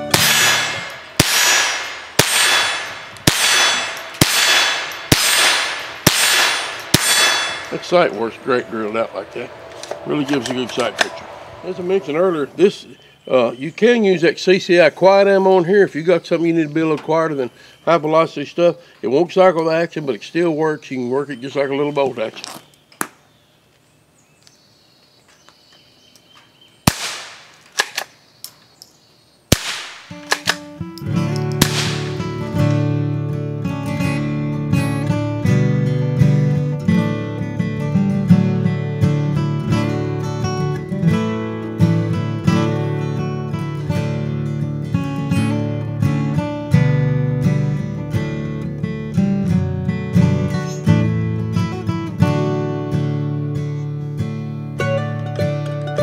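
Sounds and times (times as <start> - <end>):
rifle shots cracking: 0.0 - 8.1, 26.8 - 28.2, 29.5 - 30.7, 31.4 - 32.4
steel target ringing: 0.0 - 13.1.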